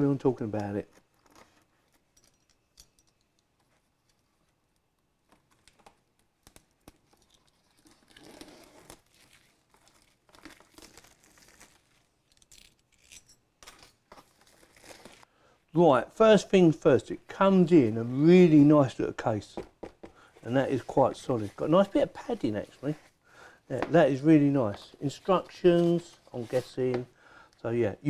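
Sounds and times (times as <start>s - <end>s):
cardboard packaging rustling: 6.6s - 12.8s.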